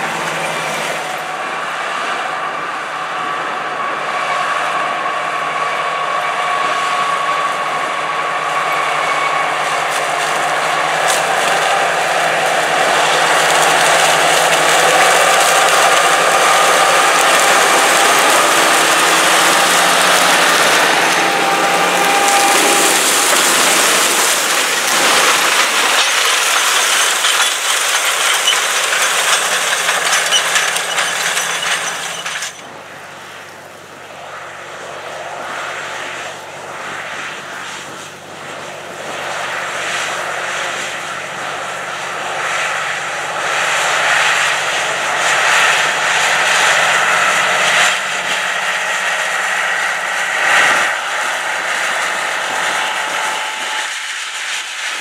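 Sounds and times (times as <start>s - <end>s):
tractor diesel engine droning: 0.0s - 34.9s, 40.1s - 55.0s
disks slicing through stalks and soil: 9.8s - 32.6s.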